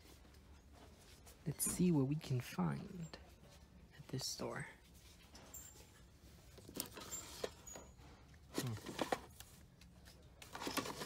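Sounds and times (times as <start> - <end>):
plastic cases clacking: 8.5 - 9.5, 10.4 - 11.0
cases scraping on shelf: 10.5 - 11.0.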